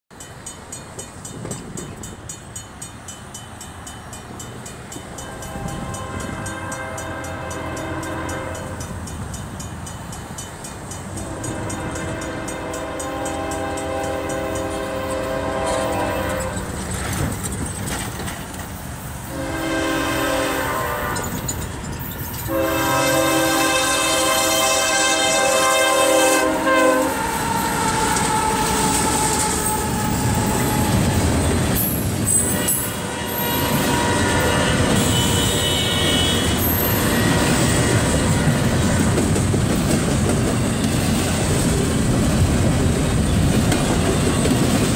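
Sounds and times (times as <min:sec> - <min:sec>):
crossing warning bell ringing: 0:00.1 - 0:17.7, 0:18.9 - 0:41.4
train rumbling: 0:00.1 - 0:44.9
locomotive air horn blasts: 0:05.1 - 0:09.0, 0:11.2 - 0:16.7, 0:19.2 - 0:21.5, 0:22.5 - 0:31.3, 0:32.3 - 0:39.0.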